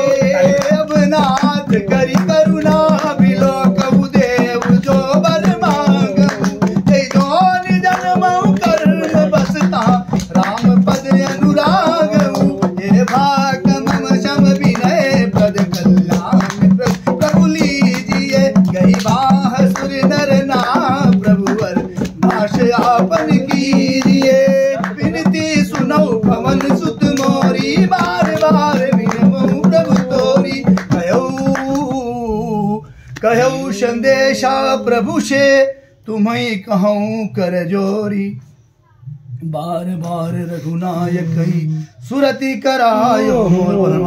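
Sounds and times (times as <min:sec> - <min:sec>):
hand drum beating: 0:00.0 - 0:32.2
man singing devotional song: 0:00.0 - 0:44.0.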